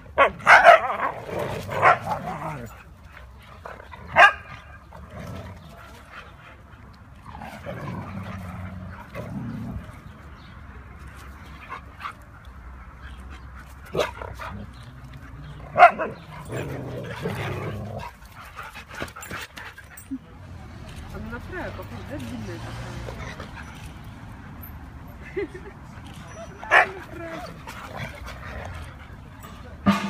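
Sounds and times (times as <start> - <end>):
dogs barking: 0.1 - 2.7, 4.1 - 4.8, 13.9 - 18.2, 26.4 - 27.6
dogs growly vocalizing: 4.8 - 6.1, 7.1 - 10.2, 13.9 - 19.4.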